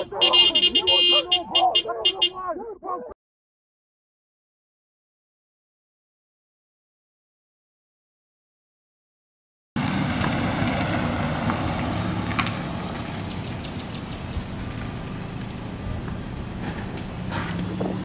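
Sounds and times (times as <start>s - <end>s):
car engine running: 9.8s - 18.0s.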